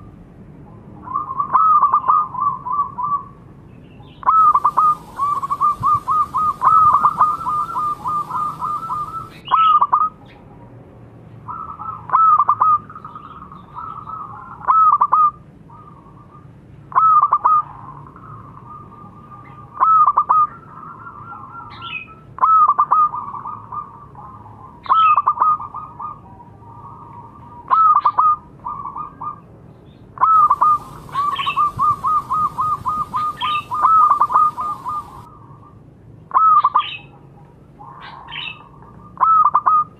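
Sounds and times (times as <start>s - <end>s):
dove cooing: 1.0s - 3.4s, 4.2s - 10.2s, 30.2s - 35.6s, 37.8s - 39.9s.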